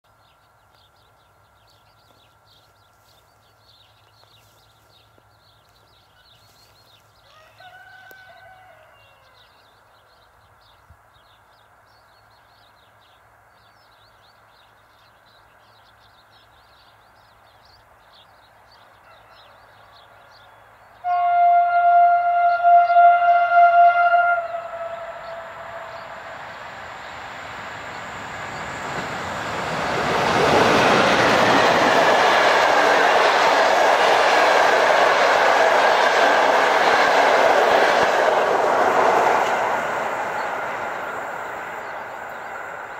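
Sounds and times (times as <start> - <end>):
approaching train: 19.3 - 42.9
locomotive horn chord: 21.0 - 26.6
birds chirping: 24.2 - 42.9.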